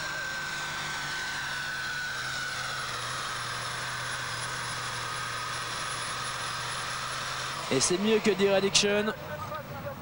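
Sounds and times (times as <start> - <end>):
tractor diesel engine running flat out: 0.0 - 10.0.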